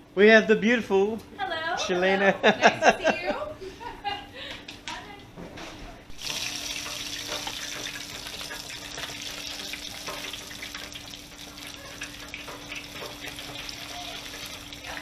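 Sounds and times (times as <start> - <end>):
food deep-frying in hot oil: 6.1 - 15.0.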